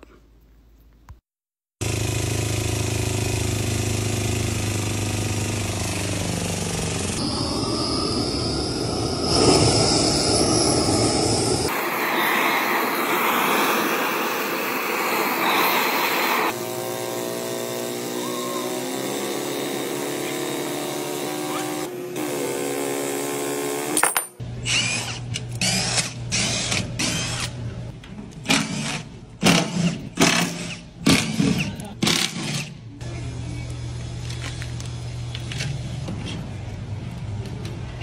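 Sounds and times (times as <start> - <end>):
workshop noise: 5.2 - 38.0
gas torch hissing: 7.2 - 16.6
impact driver bursts: 28.5 - 32.8.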